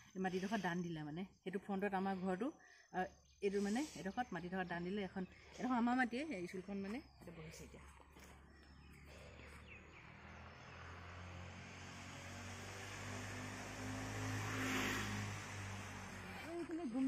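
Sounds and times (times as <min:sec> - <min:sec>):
vehicle engine passing: 0:08.3 - 0:17.0.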